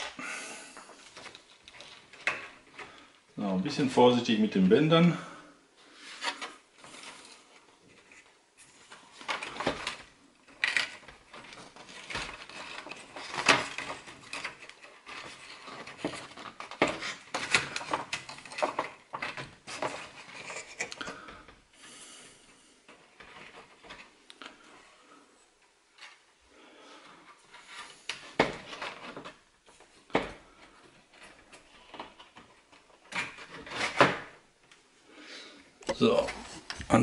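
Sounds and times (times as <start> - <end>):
plastic clicks and scrapes: 1.0 - 3.2, 6.2 - 21.5
mesh rustling: 5.9 - 21.4.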